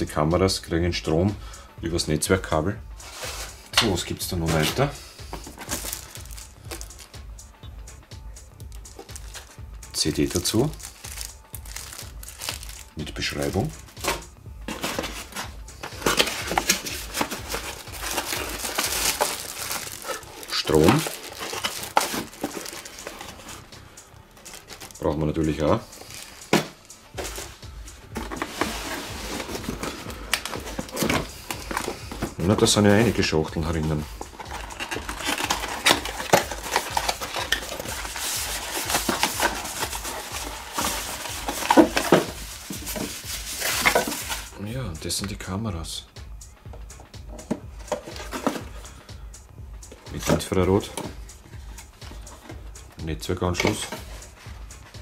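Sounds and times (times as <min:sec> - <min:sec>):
cardboard and plastic rustling: 0:03.0 - 0:07.2, 0:08.9 - 0:23.7, 0:24.4 - 0:44.6, 0:47.4 - 0:48.9, 0:49.9 - 0:52.7, 0:53.5 - 0:54.6.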